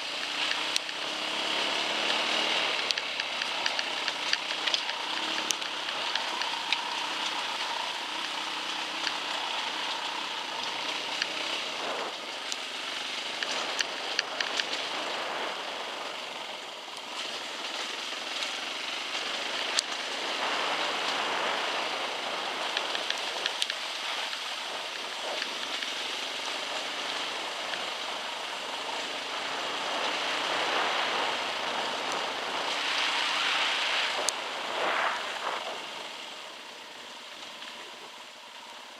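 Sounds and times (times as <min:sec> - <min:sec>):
dirt bike engine: 0:00.0 - 0:38.9
wind noise: 0:26.5 - 0:36.7.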